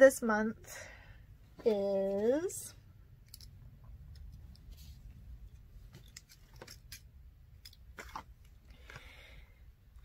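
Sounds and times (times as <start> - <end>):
small items clicking and rustling: 5.9 - 9.1.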